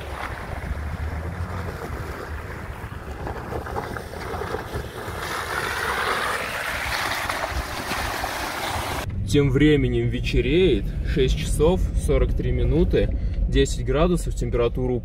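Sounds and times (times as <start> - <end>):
wind buffeting microphone: 0.0 - 9.1
suv engine climbing: 0.0 - 15.0.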